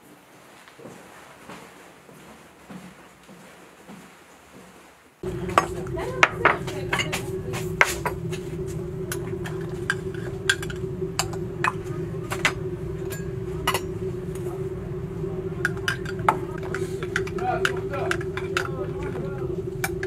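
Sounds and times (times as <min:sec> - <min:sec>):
steady low hum: 0:05.2 - 0:20.0.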